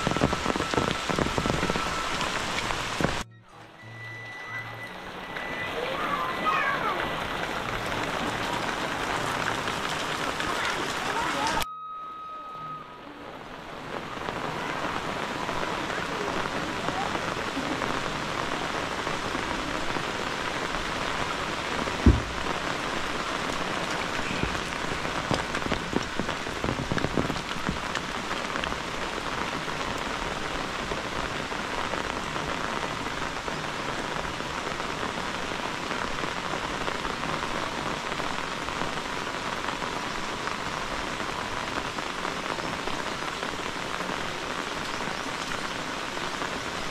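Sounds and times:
rain pattering on roof and leaves: 0.0 - 11.7, 13.0 - 46.9
sharp knocks: 22.0 - 22.5.

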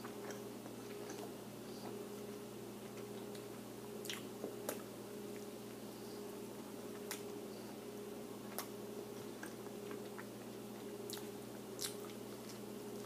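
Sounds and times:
steady low hum: 0.0 - 13.0
person chewing crispy food: 8.4 - 13.0.

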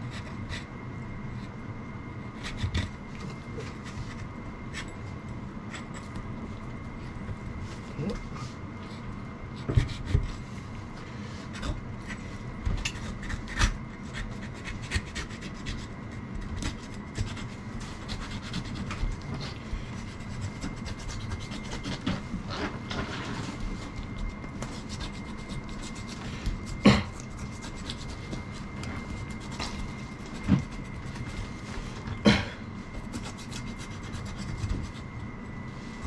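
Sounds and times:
knife scraping on cutting board: 11.4 - 31.5.

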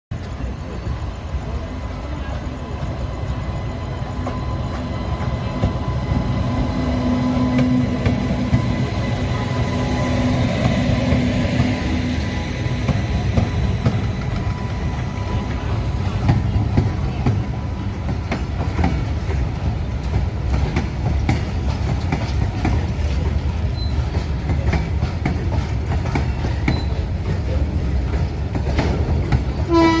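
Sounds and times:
train wheels rumbling on rail: 0.1 - 30.0
wagons clicking over rail joints: 12.6 - 30.0.

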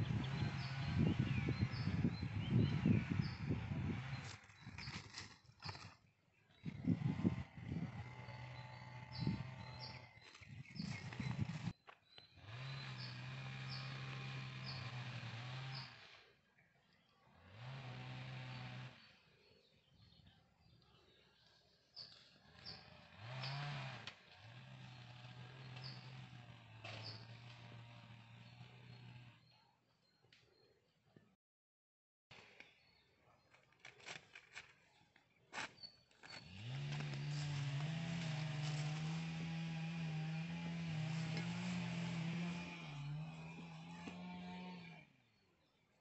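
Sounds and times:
bird chirping: 0.0 - 7.2, 7.8 - 14.0.

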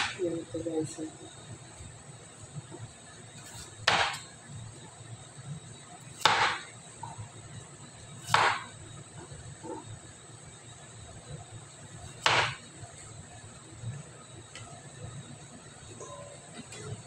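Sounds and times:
cleaver chopping on plastic board: 6.2 - 6.6, 8.3 - 8.7.

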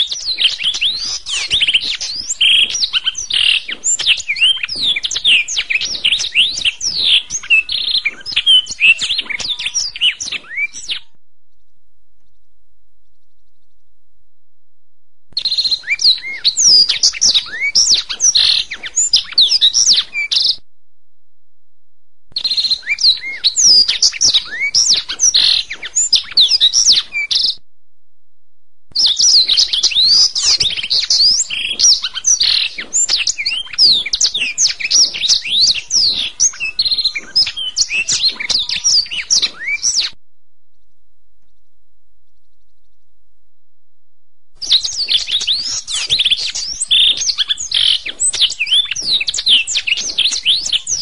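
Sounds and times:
canary singing trills: 0.0 - 12.4, 15.4 - 20.6, 22.4 - 27.6, 28.9 - 40.2, 44.6 - 51.0.

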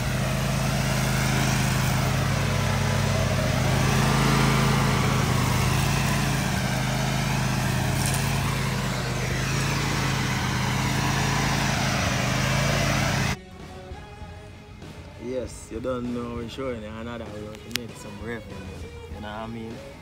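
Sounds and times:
riding mower cutting grass: 0.0 - 13.4.

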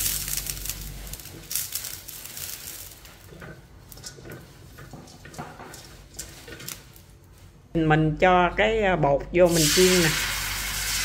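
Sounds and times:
fat sizzling in wok: 0.0 - 7.5, 9.5 - 11.0
brush tapping and scraping metal: 1.3 - 7.5.

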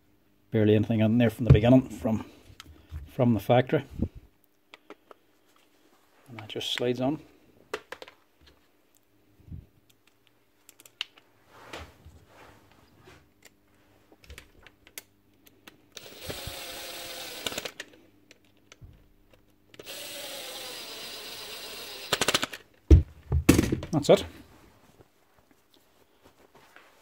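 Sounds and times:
small battery-powered motor running: 16.0 - 17.7, 19.8 - 22.4.

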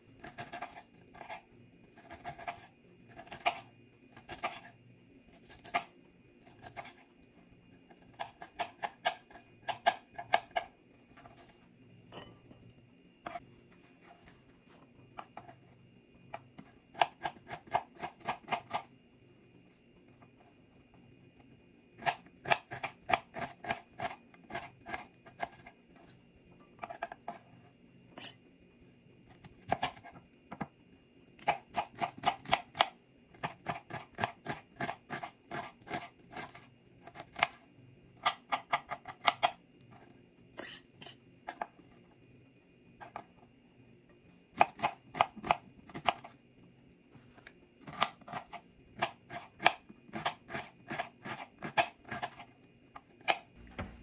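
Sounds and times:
knife chopping on wooden board: 53.2 - 54.0.

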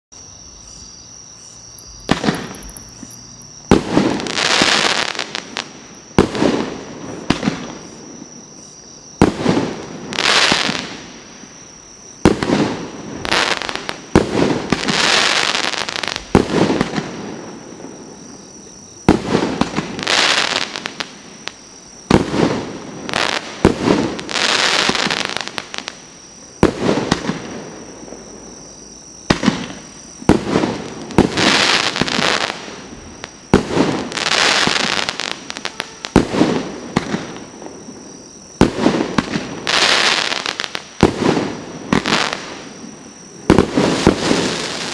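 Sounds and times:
firework stars fizzing: 1.7 - 7.7
firework bangs: 1.7 - 8.4, 9.2 - 11.2, 12.2 - 18.1, 19.0 - 28.3, 29.3 - 44.9.

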